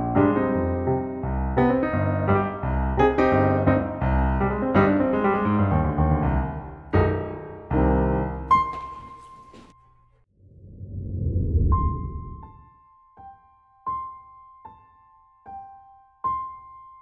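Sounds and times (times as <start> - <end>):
piano chords ringing: 0.0 - 10.1.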